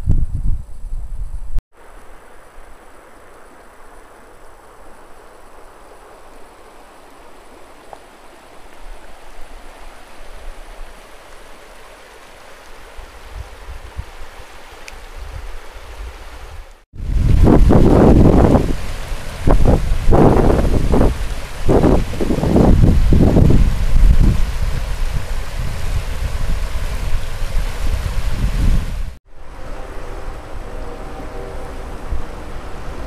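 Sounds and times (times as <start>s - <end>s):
wind rumble on microphone: 0.0s - 1.6s, 13.0s - 14.3s, 15.0s - 33.0s
river water flowing: 1.7s - 33.0s
wind gusts buffeting microphone: 15.0s - 29.2s.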